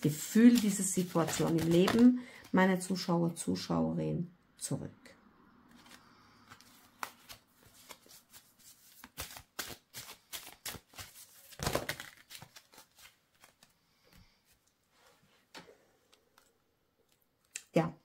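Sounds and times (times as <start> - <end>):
cards being shuffled: 0.2 - 2.1, 5.7 - 14.2.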